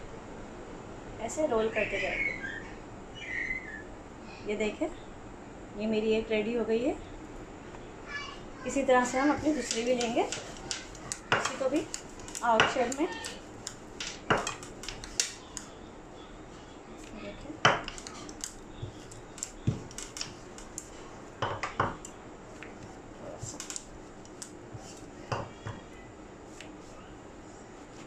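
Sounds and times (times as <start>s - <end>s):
rolling pin rolling dough: 8.7s - 15.8s, 17.6s - 28.0s
rolling pin knocking on stone: 9.6s - 13.4s, 14.0s - 15.4s, 18.8s - 20.3s.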